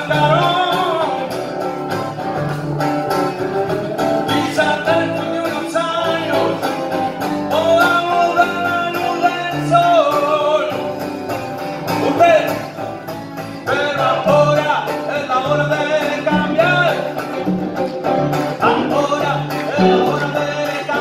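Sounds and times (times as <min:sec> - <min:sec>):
man singing: 0:00.0 - 0:01.6, 0:04.2 - 0:11.0, 0:11.9 - 0:17.5, 0:18.4 - 0:21.0
electric guitar: 0:00.0 - 0:21.0
strummed acoustic guitar: 0:00.0 - 0:21.0.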